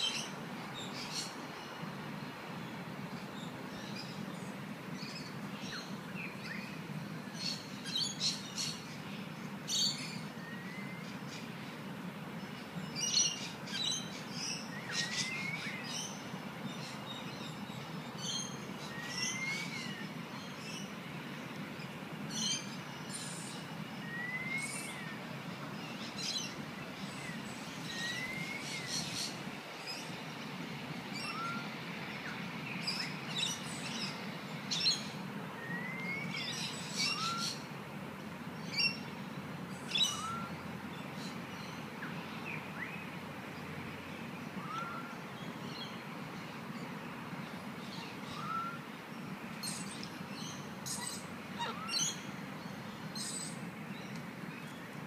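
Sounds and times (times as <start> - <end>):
bird whistling: 24.0 - 24.9, 31.3 - 31.6, 37.0 - 37.6, 40.0 - 40.5, 44.6 - 45.1, 48.4 - 48.8.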